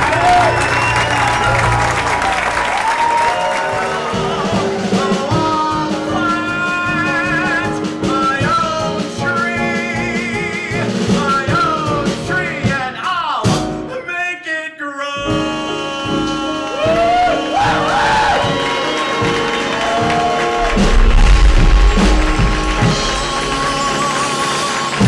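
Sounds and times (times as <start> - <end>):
live band with upright bass: 0.0 - 13.9, 15.2 - 25.0
person singing with vibrato: 4.9 - 18.2, 21.9 - 25.0.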